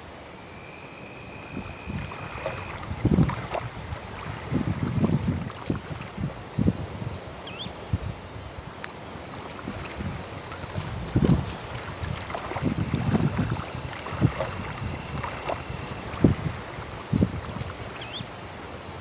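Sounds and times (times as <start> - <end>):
shallow water splashing: 1.4 - 6.5, 9.3 - 17.7.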